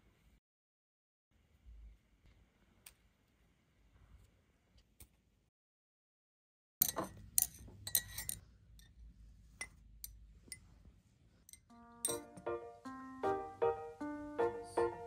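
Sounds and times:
mugs and glass straws clinking: 6.8s - 9.0s, 11.5s - 12.4s.

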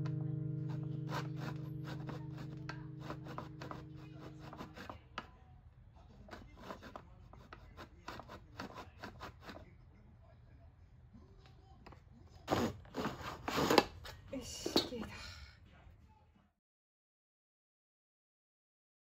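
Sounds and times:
acoustic guitar music: 0.0s - 5.0s.

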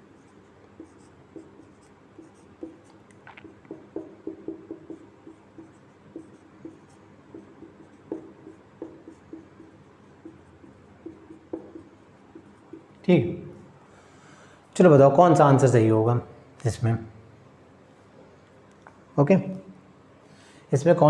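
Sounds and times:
marker writing on whiteboard: 0.0s - 13.1s.

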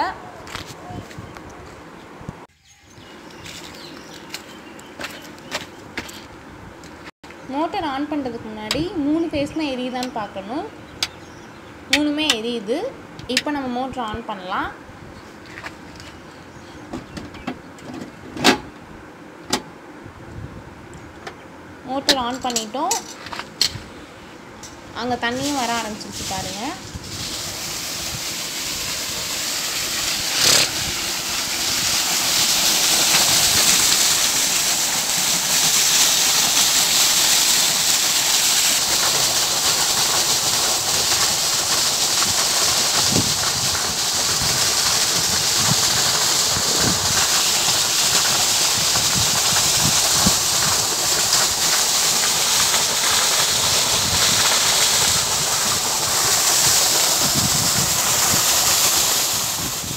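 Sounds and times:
water gushing onto stones: 25.2s - 59.9s.

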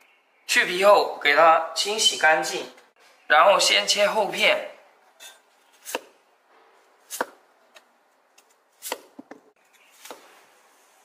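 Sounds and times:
cleaver slicing potato: 5.2s - 6.2s, 7.0s - 7.9s, 8.8s - 9.3s.

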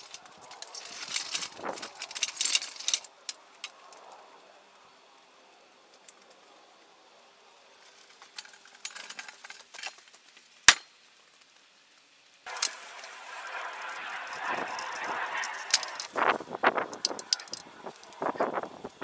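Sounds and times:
metal wheels rattling on gravel: 0.0s - 11.6s, 12.5s - 19.0s
loud steady rattling noise: 12.5s - 19.0s.

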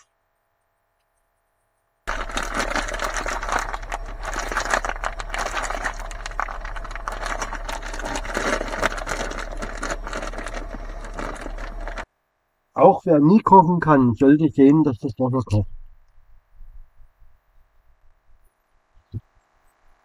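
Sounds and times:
low hum: 0.0s - 12.7s.

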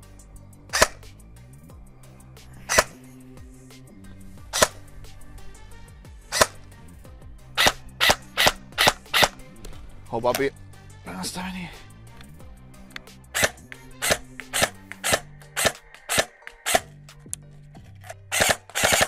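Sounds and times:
airsoft gun single shots: 0.7s - 1.1s, 2.7s - 3.0s, 4.5s - 4.8s, 6.3s - 6.6s, 7.6s - 9.4s, 13.4s - 16.9s, 18.3s - 19.0s.

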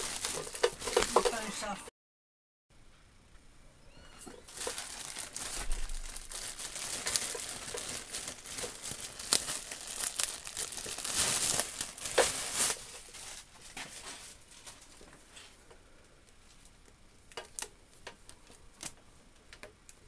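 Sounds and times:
plastic bag crinkling: 0.0s - 1.7s, 4.2s - 15.1s.

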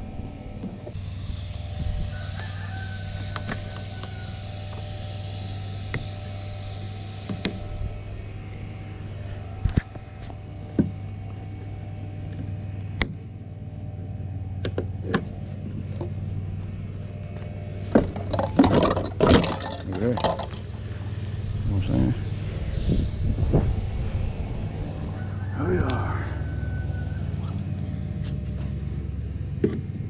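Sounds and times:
steady low hum: 0.0s - 30.0s
metal knocks and scraping: 17.8s - 20.8s.

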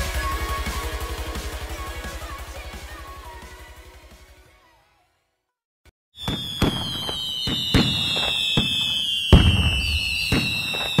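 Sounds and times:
firework bangs and crackles: 6.2s - 11.0s
firework whistle falling: 6.2s - 11.0s.

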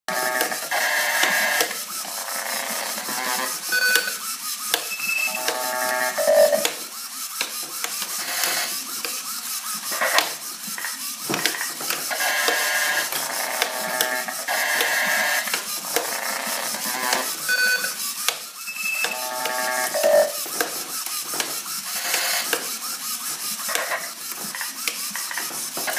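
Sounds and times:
glitchy electronic buzzing and stuttering: 0.1s - 4.1s, 4.9s - 6.6s, 9.8s - 18.0s, 18.8s - 20.4s
rapid clicks: 0.2s - 25.9s
held electronic chords: 5.0s - 6.8s.

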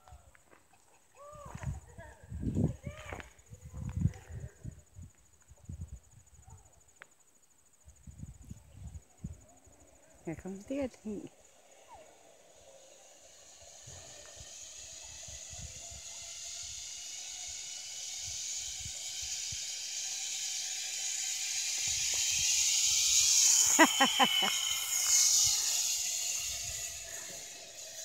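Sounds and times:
zip line pulleys whirring on cable: 0.0s - 6.8s, 7.8s - 28.0s
short pulses: 10.0s - 28.0s.

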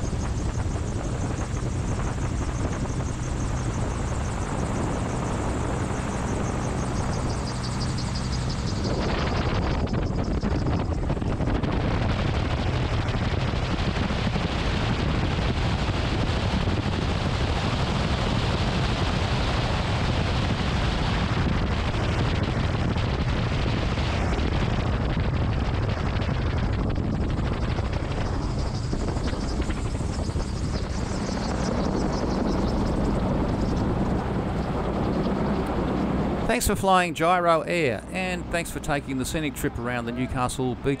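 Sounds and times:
rotor and engine noise: 0.0s - 41.0s
wind buffeting microphone: 0.0s - 41.0s.

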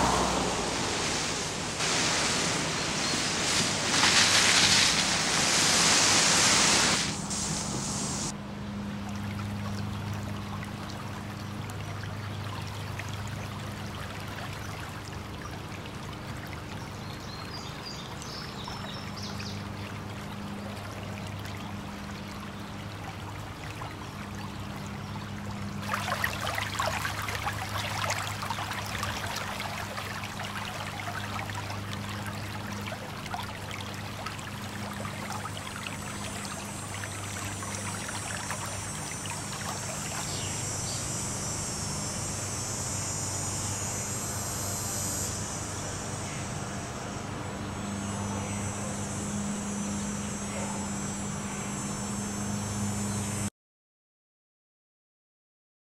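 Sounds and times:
water running and splashing: 0.0s - 8.3s, 25.8s - 40.4s
steady low hum: 0.0s - 53.5s.

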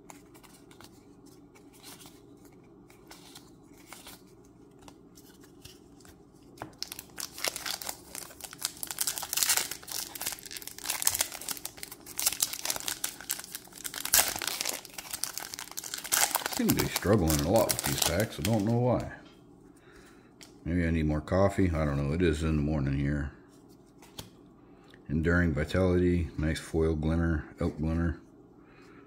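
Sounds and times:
plastic wrapper tearing and crinkling: 6.6s - 19.1s.

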